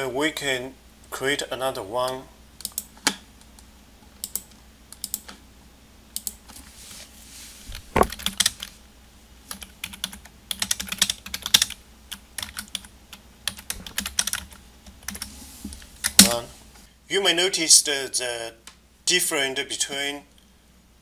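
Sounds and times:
heavy knock: 7.9 - 8.2
keyboard typing: 8.0 - 8.7, 9.5 - 15.3.

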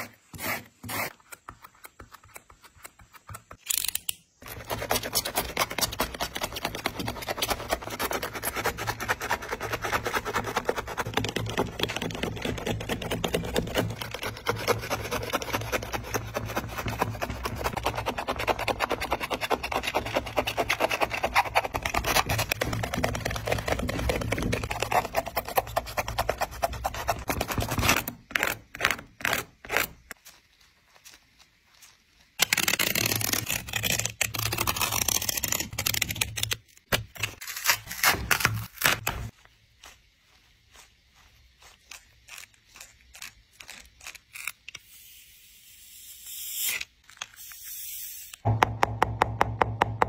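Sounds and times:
knife slicing through foam: 0.0 - 1.4
glued layers crackling apart: 28.4 - 40.0.

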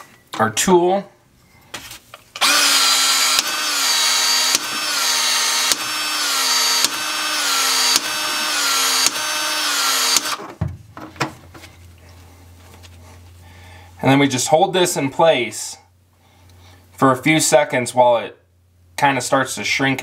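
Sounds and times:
cordless expansion tool motor: 2.4 - 10.4.

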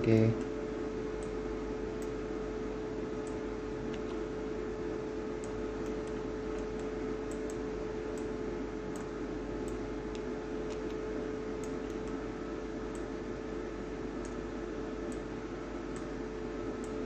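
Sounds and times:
background hiss and hum: 0.0 - 17.0
computer mouse clicks: 3.2 - 4.2, 5.4 - 11.0, 11.6 - 12.2, 12.9 - 13.1, 14.2 - 14.4, 15.1 - 15.3, 15.9 - 16.1.

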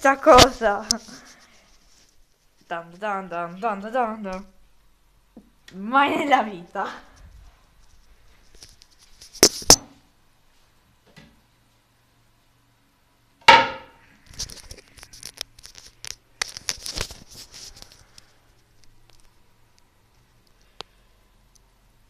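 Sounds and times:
handling rustles: 14.3 - 19.3.

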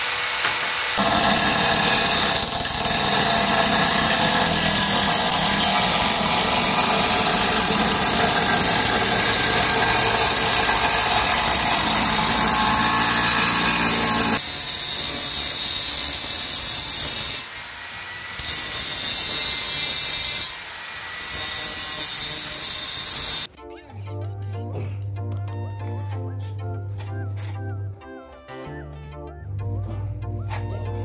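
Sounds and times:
angle grinder cutting tile: 0.0 - 23.5.

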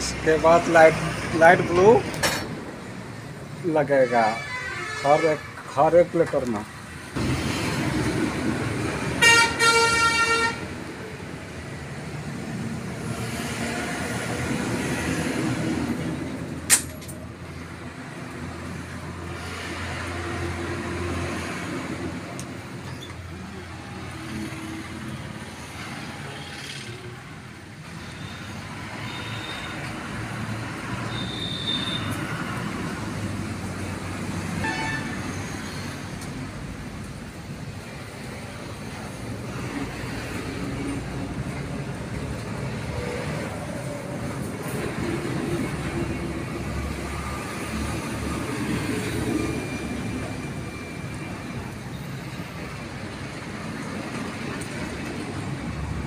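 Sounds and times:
road traffic noise: 0.0 - 56.0
vehicle horn honking: 4.0 - 5.5, 9.2 - 10.6, 31.1 - 32.2, 34.6 - 35.2
sharp click: 16.7 - 17.2.

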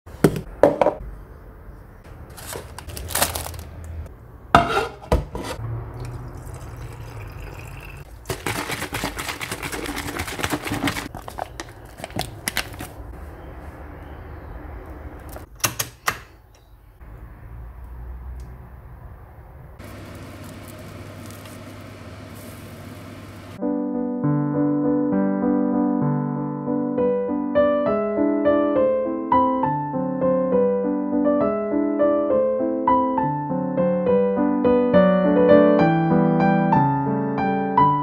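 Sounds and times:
shaker bottle sloshing and rattling: 6.9 - 12.9.

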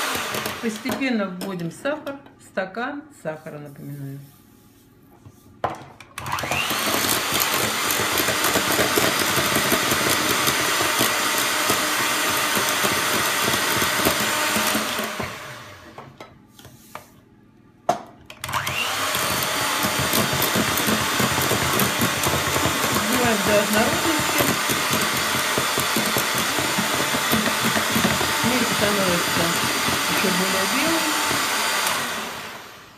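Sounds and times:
electric hand mixer whisking: 0.0 - 1.0, 6.2 - 16.0, 18.4 - 32.9.

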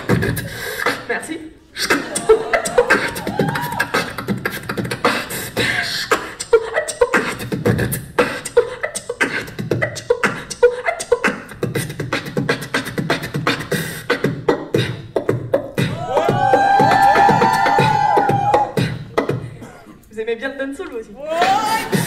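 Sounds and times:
beatboxing drum hits: 0.0 - 1.1, 1.8 - 19.8, 21.4 - 22.0.

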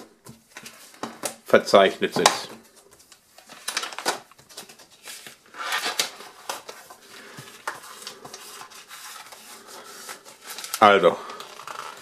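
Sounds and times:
paper and cardboard rustling: 0.0 - 12.0.

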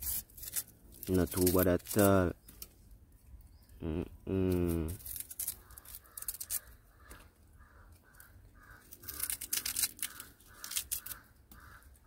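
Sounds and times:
knife scraping yam skin: 0.0 - 2.7, 4.5 - 7.2, 8.2 - 11.9
bird calling: 5.4 - 12.0.

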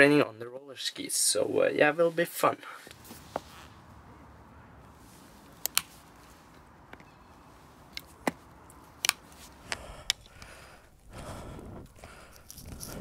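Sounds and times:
ski bindings clicking: 9.0 - 10.6.

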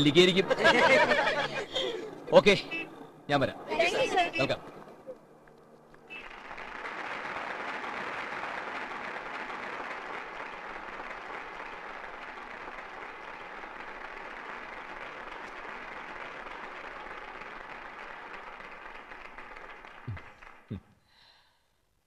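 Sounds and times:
large audience applauding: 6.1 - 20.8.

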